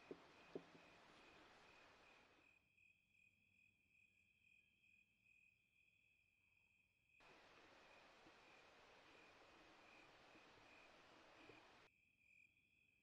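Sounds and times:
faint hiss: 0:00.0 - 0:02.4, 0:07.2 - 0:11.9
crickets chirping: 0:00.0 - 0:12.8.

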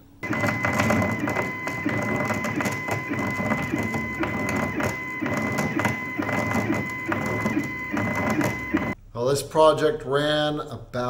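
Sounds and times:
steady high whine: 0:00.2 - 0:09.0.

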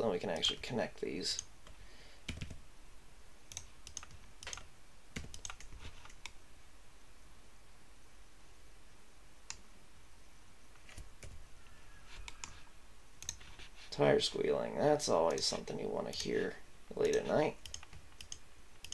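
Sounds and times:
keyboard and mouse clicks: 0:03.5 - 0:06.4, 0:10.8 - 0:11.4, 0:12.1 - 0:13.7, 0:17.0 - 0:18.9.

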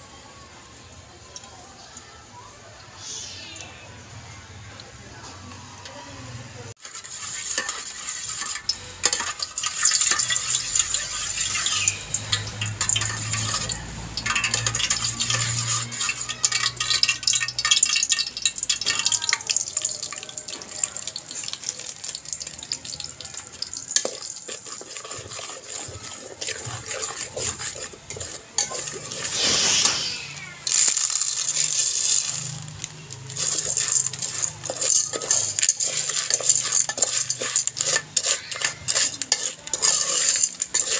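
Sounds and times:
metal spatula scraping steel pot: 0:06.8 - 0:40.9
loud rush: 0:28.2 - 0:36.8.

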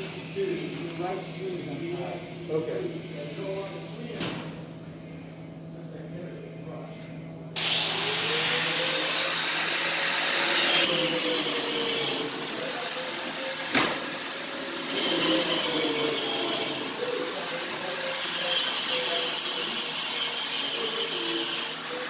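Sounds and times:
motorised workshop tool whirring: 0:07.6 - 0:22.0.

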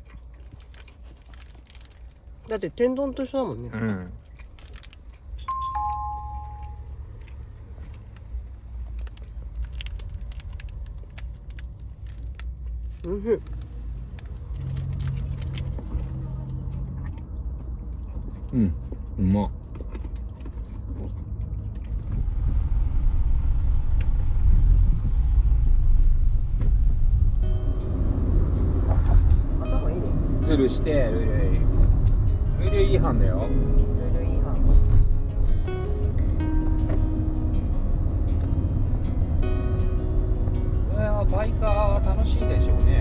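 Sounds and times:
steady low rumble: 0:04.1 - 0:43.0
two-note electronic chime: 0:05.5 - 0:07.0.

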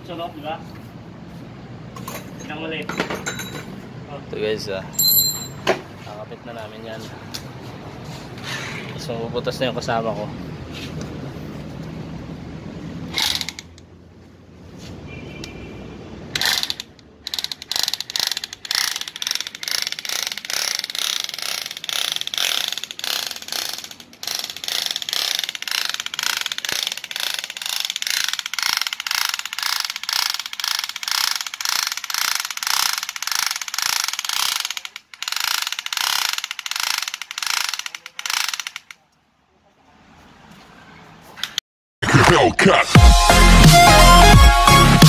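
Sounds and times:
electric drill grinding into metal: 0:16.4 - 0:37.9.

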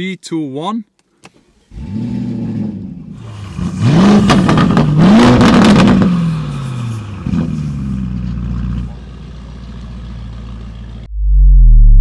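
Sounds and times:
car engine starting and idling: 0:01.2 - 0:11.2
engine revving with crackles: 0:01.7 - 0:08.9.

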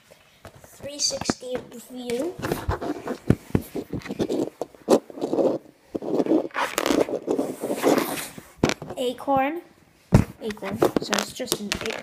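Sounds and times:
plastic model rubbing and scraping: 0:02.2 - 0:08.9.

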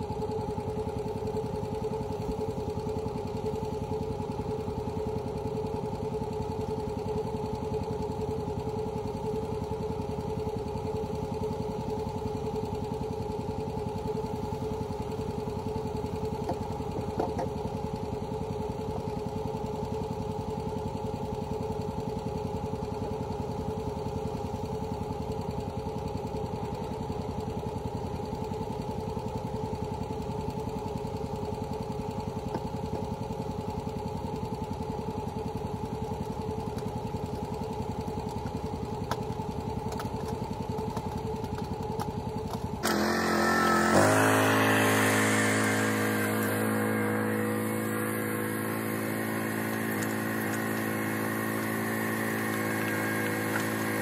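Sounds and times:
engine idling: 0:00.0 - 0:54.0.

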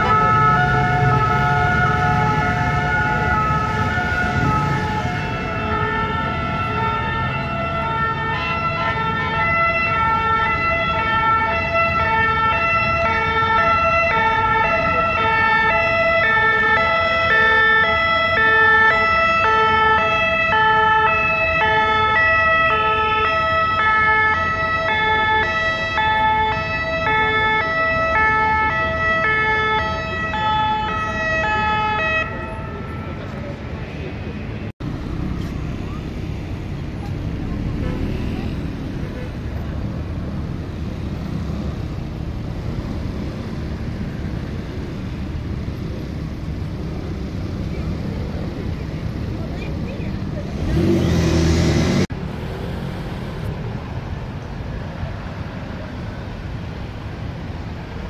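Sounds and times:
two-tone sirens: 0:00.0 - 0:34.8
low traffic noise: 0:00.0 - 0:58.0.

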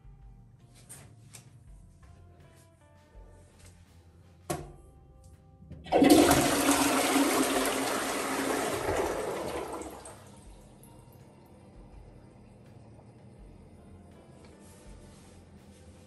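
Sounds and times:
toilet flushing: 0:05.8 - 0:14.9.

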